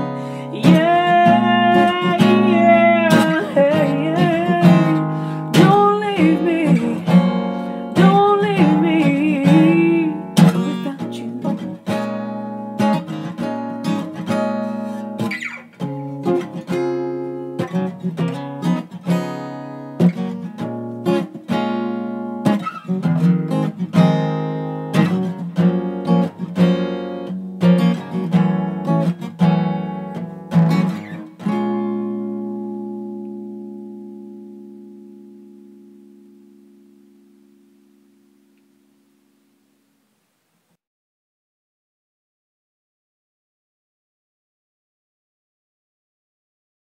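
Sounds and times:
person singing: 0.0 - 11.8
acoustic guitar: 0.0 - 40.8.

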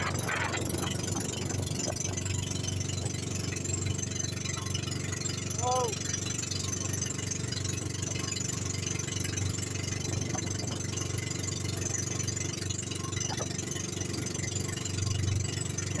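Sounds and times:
boat engine drone: 0.0 - 16.0.

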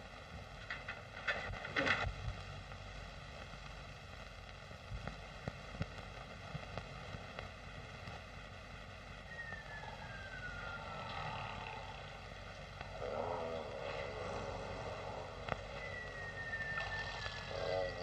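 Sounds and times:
clicks and crackles: 0.0 - 18.0
film soundtrack hiss: 0.0 - 18.0
whistle-like tone sliding down: 9.3 - 11.4, 15.7 - 18.0.

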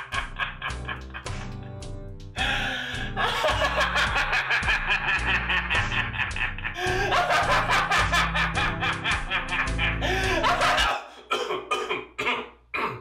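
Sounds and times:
man laughing hard: 0.0 - 1.7, 2.4 - 12.5
background music: 0.0 - 12.0
breaths and coughs: 10.1 - 13.0.

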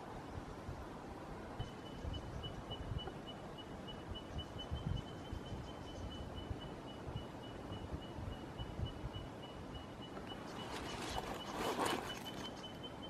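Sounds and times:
wind rumble on microphone: 0.0 - 9.8.

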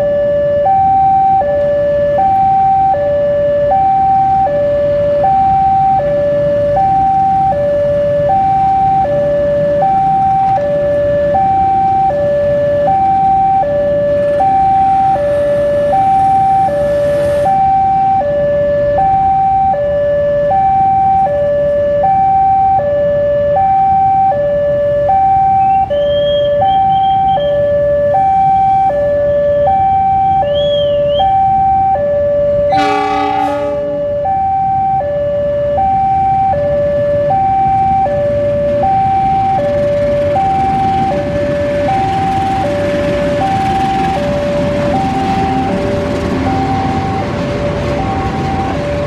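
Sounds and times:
level crossing two-tone alarm: 0.0 - 49.0
locomotive horn blast: 32.6 - 34.8.

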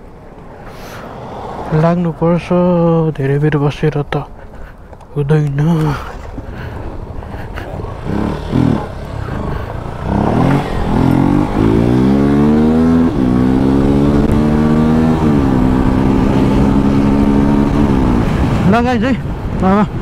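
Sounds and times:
motorcycle engine revving: 6.6 - 18.8.

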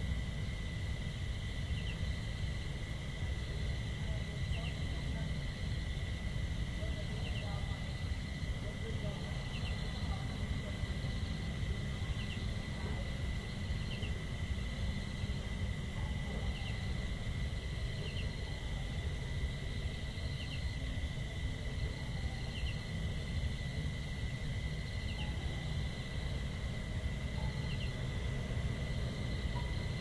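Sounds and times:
insect drone: 0.0 - 30.0
low steady rumble: 0.0 - 30.0.

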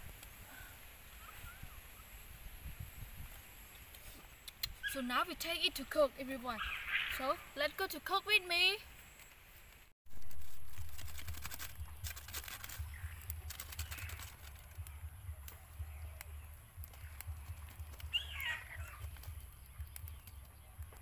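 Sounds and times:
steady low rumble: 10.6 - 21.0.

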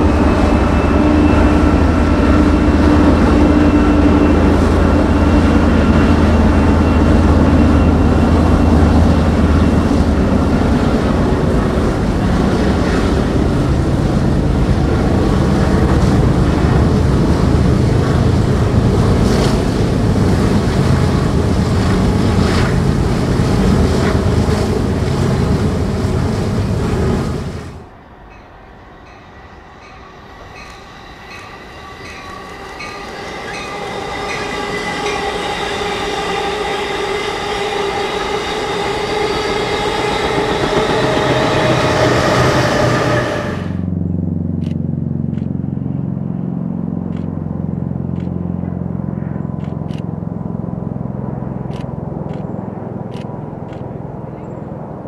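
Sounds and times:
passenger train approaching: 0.0 - 44.5, 45.6 - 55.0
diesel locomotive engine drone: 0.0 - 55.0
train wheels clicking: 28.3 - 43.8.

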